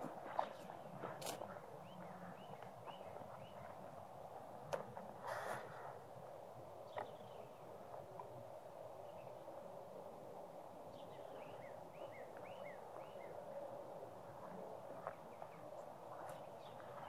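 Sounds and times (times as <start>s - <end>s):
faint outdoor hiss: 0.0s - 17.0s
bird chirping: 1.8s - 3.7s, 6.9s - 7.8s, 10.9s - 13.7s.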